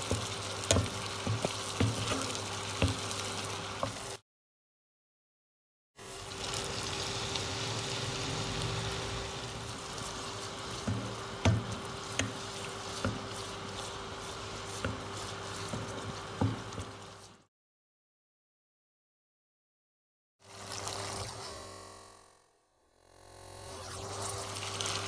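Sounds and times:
wooden spoon stirring: 0.0s - 4.0s, 9.6s - 17.4s
paste sizzling in frying pan: 0.0s - 4.2s, 6.0s - 17.5s, 24.1s - 25.0s
spoon knocking against pan: 0.1s - 3.0s, 10.8s - 12.4s, 15.7s - 16.9s.

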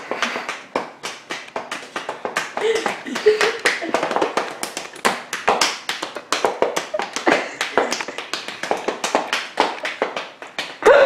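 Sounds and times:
sharp taps and slaps: 0.0s - 10.8s.

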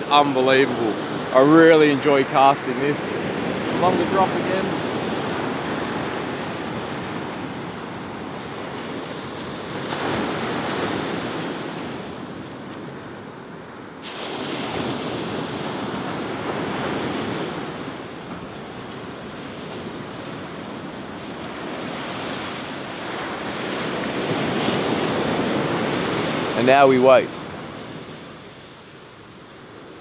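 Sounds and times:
ocean surf washing onto beach: 0.0s - 30.0s
wind buffeting microphone: 0.0s - 30.0s.

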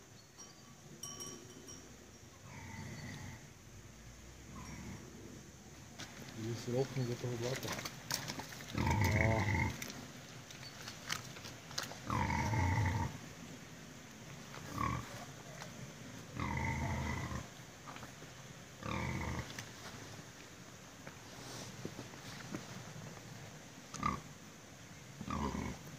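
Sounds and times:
pig grunting: 4.5s - 5.2s, 8.7s - 9.9s, 12.0s - 13.2s, 14.6s - 15.2s, 16.3s - 17.5s, 18.8s - 19.6s, 24.0s - 24.2s, 25.2s - 25.9s.

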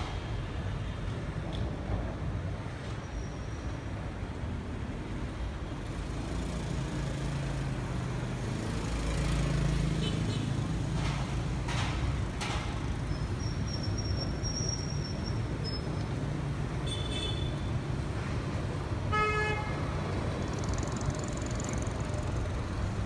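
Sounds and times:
motorbike and bus engines: 0.0s - 23.0s.

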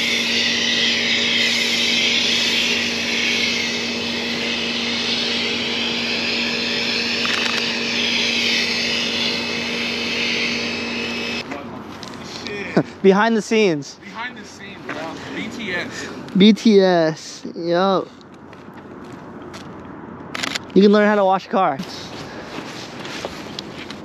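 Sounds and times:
motor and pump hum: 0.0s - 11.4s
pressure washer spray hiss: 0.0s - 11.4s.

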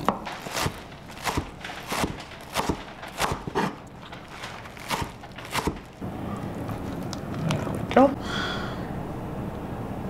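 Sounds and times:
knife chopping on wooden board: 0.0s - 3.8s, 4.8s - 5.9s.

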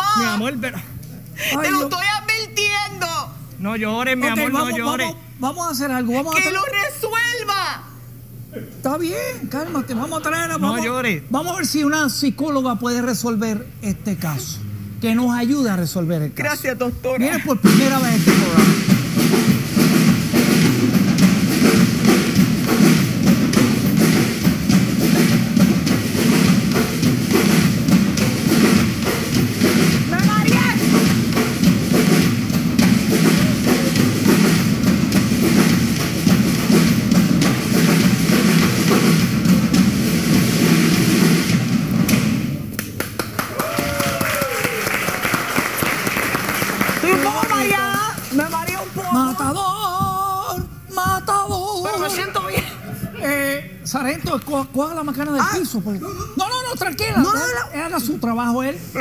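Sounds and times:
drum kit playing steady rhythm: 0.0s - 11.4s, 16.4s - 59.0s
gliding vocal whoop: 43.5s - 45.0s.

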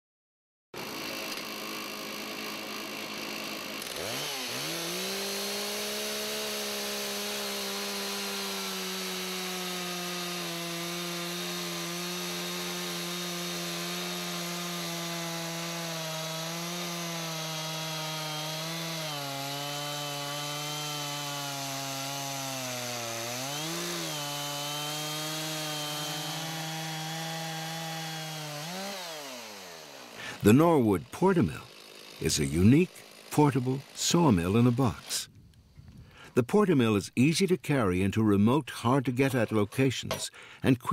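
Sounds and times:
chainsaw cutting log: 0.8s - 35.4s.

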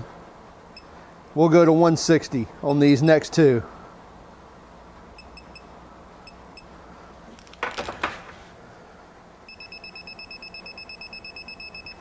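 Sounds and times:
torque wrench beeping: 9.5s - 12.0s.

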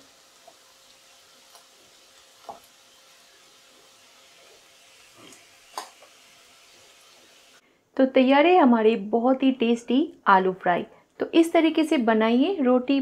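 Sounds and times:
potato frying in oil: 0.0s - 7.6s.

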